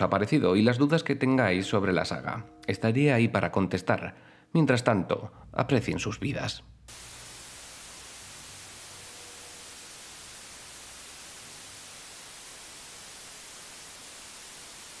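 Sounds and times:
tv static hiss: 6.9s - 15.0s.

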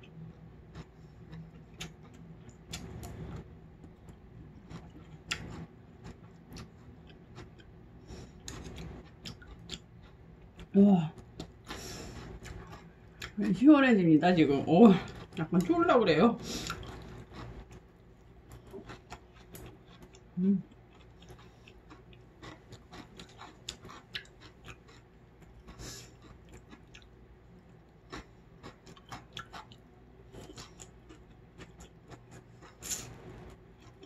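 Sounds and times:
chewing noodles: 0.7s - 13.4s, 16.5s - 34.0s
person humming: 20.4s - 20.6s.

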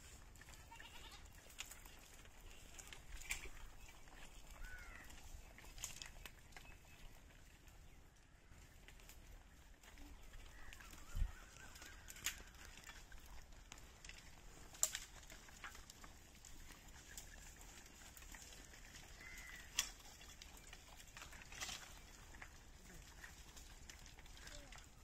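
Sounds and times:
tree branches rustling: 0.0s - 25.0s
twigs snapping: 10.6s - 16.0s, 19.2s - 20.4s.

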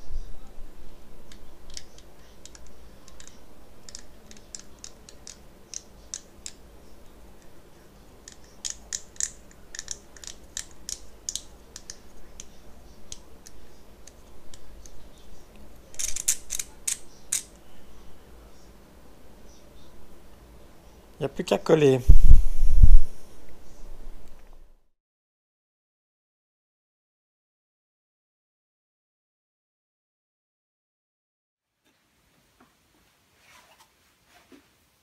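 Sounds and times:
pepper grinder clicking: 8.3s - 12.5s, 16.0s - 17.5s.

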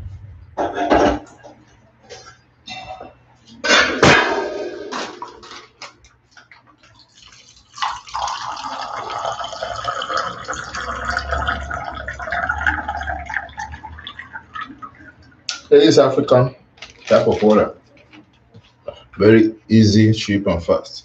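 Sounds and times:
water pouring into plastic cup: 6.8s - 15.2s.

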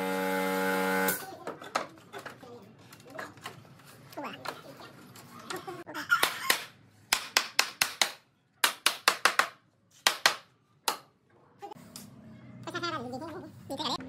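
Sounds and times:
hammer striking wood: 6.5s - 11.0s.

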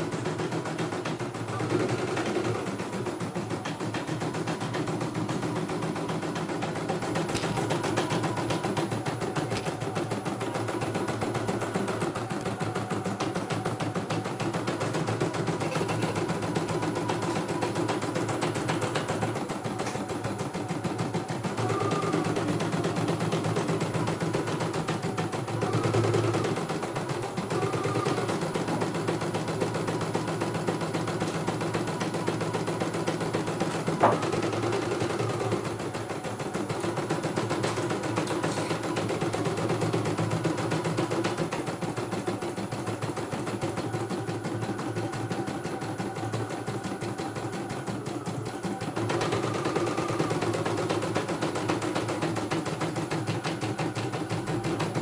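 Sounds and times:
sewing needle clatter: 0.0s - 55.0s
motor hum: 33.3s - 36.9s.

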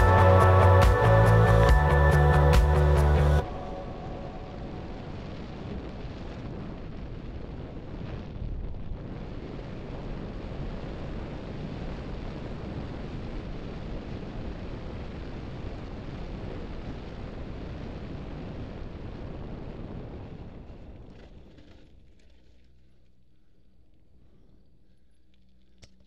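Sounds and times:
background music: 0.0s - 5.0s
wind buffeting microphone: 3.4s - 21.8s
bike tyres on gravel trail: 20.2s - 26.0s.

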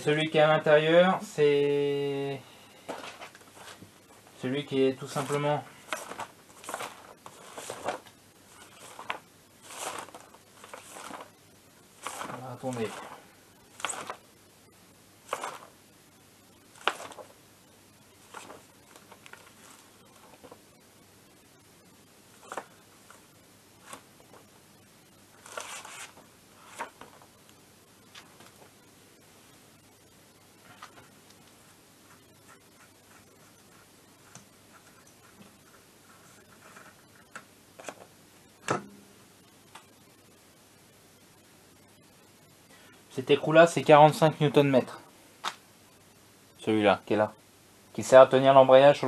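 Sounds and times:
paper rustling: 2.8s - 11.4s, 12.0s - 14.2s, 15.2s - 15.7s, 16.7s - 17.4s, 18.2s - 20.6s, 22.4s - 24.5s, 25.3s - 27.3s, 30.6s - 38.1s.

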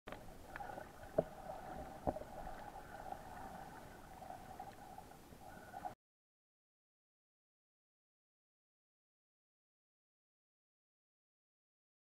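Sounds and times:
muffled underwater hum: 0.1s - 6.0s.

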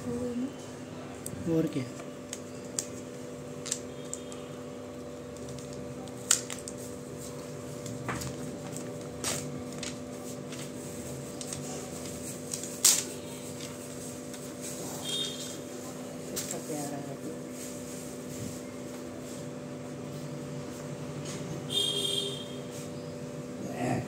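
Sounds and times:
packaging crinkling and rustling: 1.8s - 15.2s.

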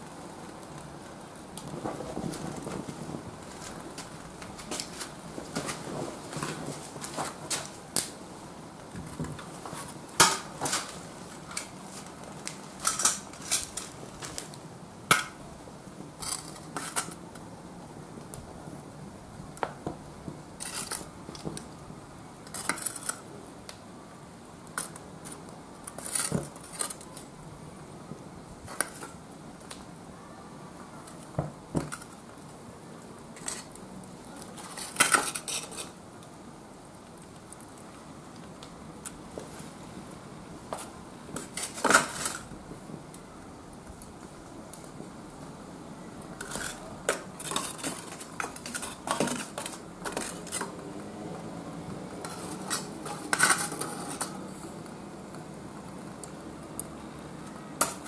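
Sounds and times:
metal tongs clinking on charcoal: 12.4s - 14.5s, 34.4s - 36.0s, 52.2s - 54.6s.

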